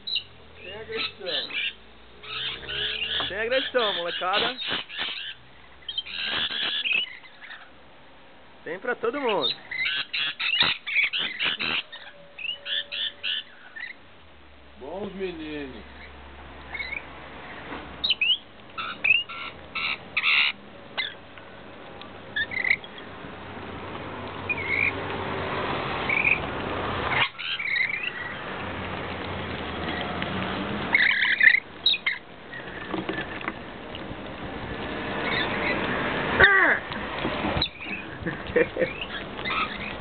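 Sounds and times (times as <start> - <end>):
lorikeets chattering and screeching: 0.0 - 7.8, 8.7 - 14.0, 14.9 - 21.2, 22.3 - 23.1, 24.4 - 25.0, 26.0 - 26.5, 27.1 - 28.6, 30.9 - 33.4, 35.2 - 36.9, 37.6 - 40.0.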